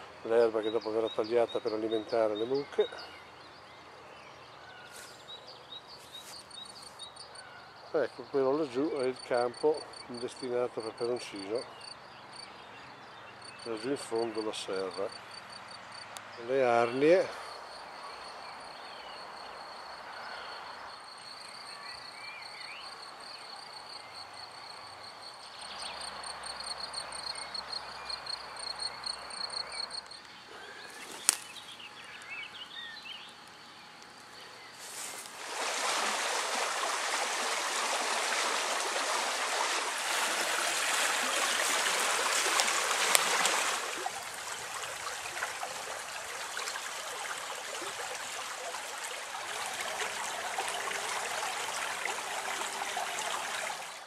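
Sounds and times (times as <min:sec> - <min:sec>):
rushing woodland stream: 0:24.8 - 0:33.4, 0:34.7 - 0:54.0.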